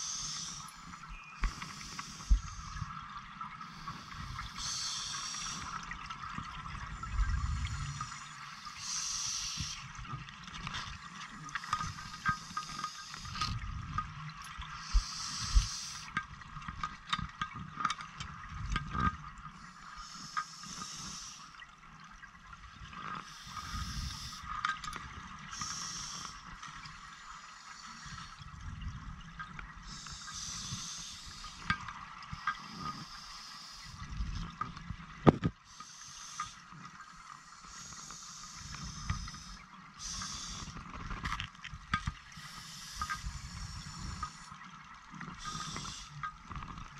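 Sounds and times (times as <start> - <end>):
regulator air hiss: 0.0 - 3.0, 3.6 - 5.8, 7.6 - 9.9, 11.5 - 13.4, 14.8 - 16.1, 19.6 - 21.6, 23.2 - 24.5, 25.5 - 26.4, 27.0 - 28.4, 29.9 - 31.7, 32.4 - 34.0, 35.7 - 36.6, 37.2 - 40.8, 42.3 - 44.6, 45.4 - 46.2
underwater bubbling and clicking: 0.0 - 46.9.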